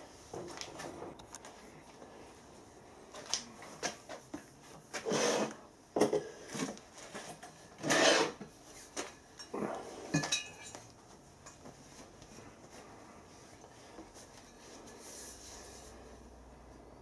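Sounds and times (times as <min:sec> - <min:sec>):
metal parts scraping on workbench: 0:05.0 - 0:05.6, 0:07.2 - 0:08.4.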